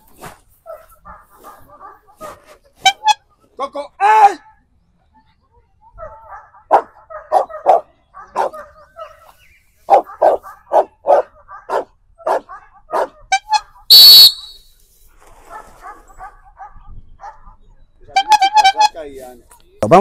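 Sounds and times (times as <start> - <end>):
dog barking: 0.6 - 2.6, 5.9 - 13.9, 15.4 - 17.7
whistle blast: 13.4 - 14.8.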